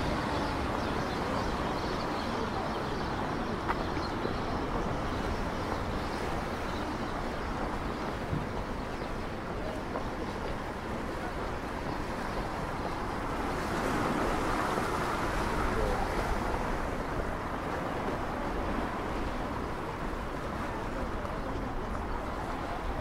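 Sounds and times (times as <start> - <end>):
sea washing against shore: 5.7 - 23.0.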